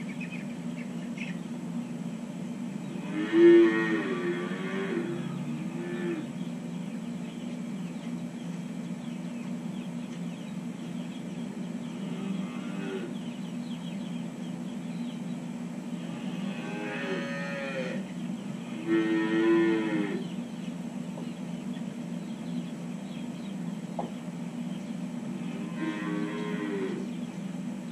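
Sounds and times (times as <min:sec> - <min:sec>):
steady low hum: 0:00.0 - 0:27.9
calves mooing: 0:02.9 - 0:06.4, 0:11.9 - 0:13.2, 0:16.0 - 0:20.3, 0:25.3 - 0:27.1.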